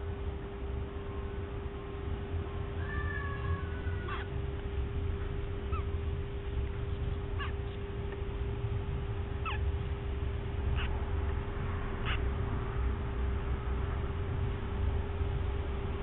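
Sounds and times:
steady low hum: 0.0 - 16.0
parrot chick peeping: 2.8 - 8.3, 9.2 - 9.9, 10.6 - 12.4.

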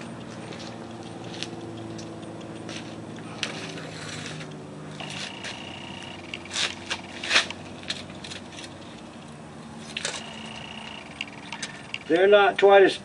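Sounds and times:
low hum: 0.0 - 12.2
tape measure clicks and scrapes: 0.5 - 10.2.

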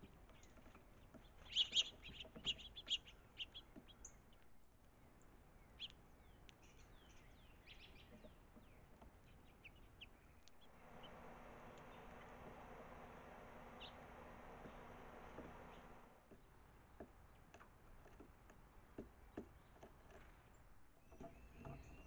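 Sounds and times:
songbirds chirping: 0.0 - 22.0
steady hiss: 10.7 - 16.1.

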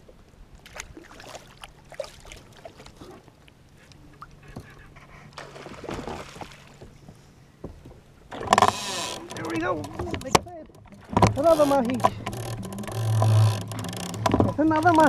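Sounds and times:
water splashing against kayak hull: 0.1 - 15.0
small clicks and knocks: 7.7 - 15.0.

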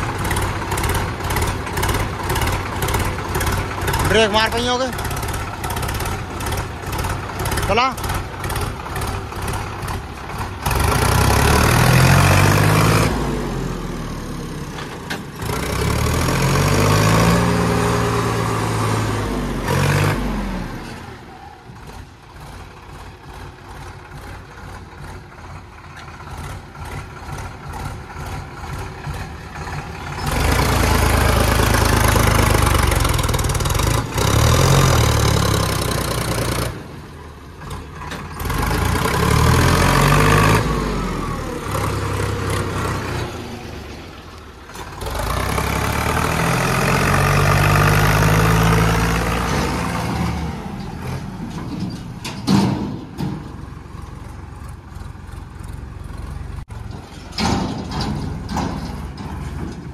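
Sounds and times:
tractor engine ticking idle: 0.0 - 11.3, 21.6 - 34.3, 53.0 - 59.9
tractor diesel engine revving: 0.0 - 59.9.

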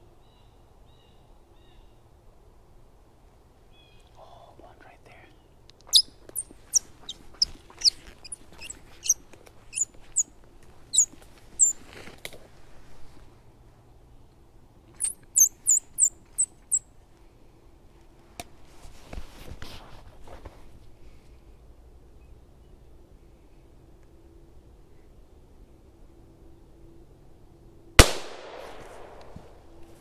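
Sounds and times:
rustle: 0.0 - 30.0
high-pitched squeaking chatter: 5.9 - 10.3, 10.9 - 11.8, 15.0 - 16.8.

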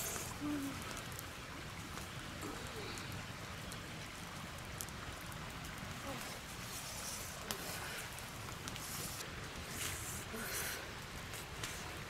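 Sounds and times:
campfire crackling and hissing: 0.0 - 12.0.

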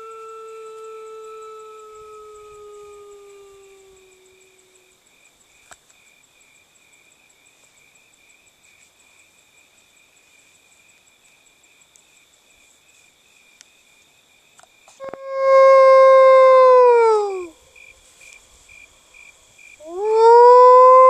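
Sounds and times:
person imitating wolf howl: 0.0 - 4.9, 15.0 - 17.6, 19.8 - 21.0
insects trilling: 0.0 - 21.0.

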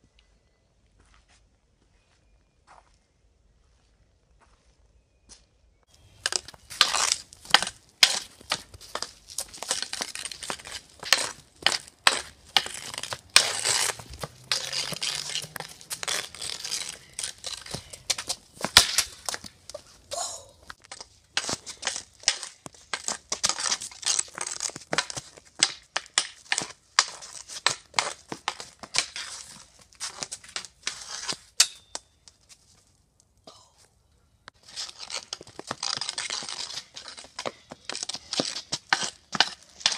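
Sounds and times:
hockey stick scraping on concrete: 6.0 - 20.1, 20.7 - 32.9, 34.5 - 39.9.

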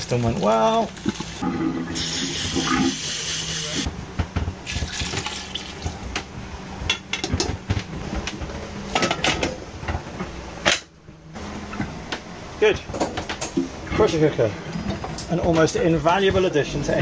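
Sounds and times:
water pouring into a metal pot: 0.0 - 2.7.

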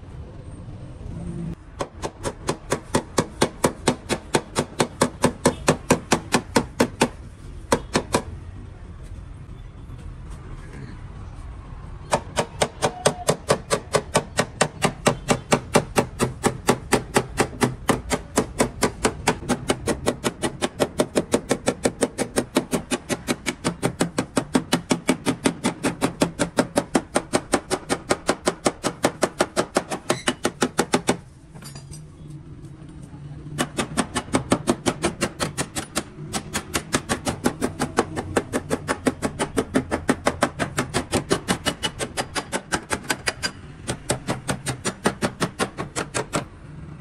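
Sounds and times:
hammer tapping sheet metal: 12.1 - 31.3, 33.6 - 46.5.

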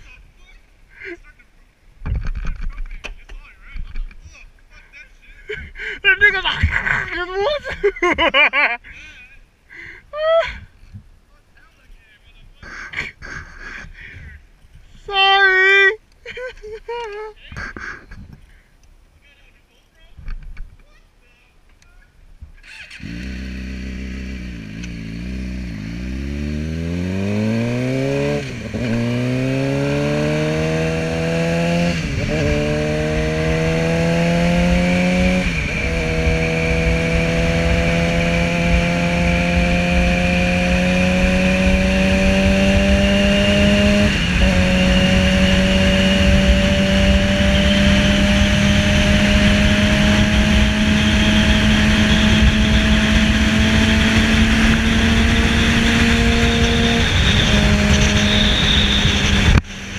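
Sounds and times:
motorcycle engine accelerating: 22.6 - 59.9
wind rushing over helmet: 41.2 - 59.9.

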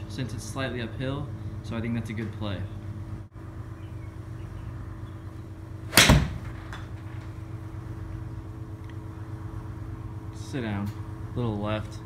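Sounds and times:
low hum: 0.0 - 12.0
golf club striking ball: 5.9 - 7.2.

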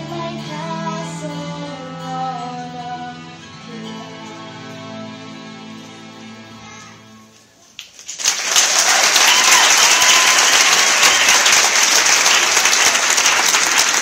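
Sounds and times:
audience applause: 8.1 - 14.0.

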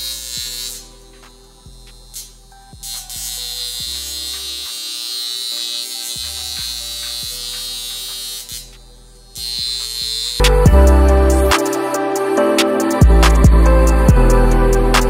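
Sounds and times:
small electric motor buzzing: 0.0 - 14.6
background music: 0.0 - 15.0.

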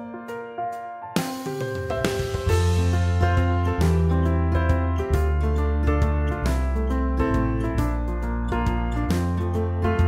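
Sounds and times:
keyboard chords: 0.0 - 10.0
deep held bass: 2.5 - 10.0.

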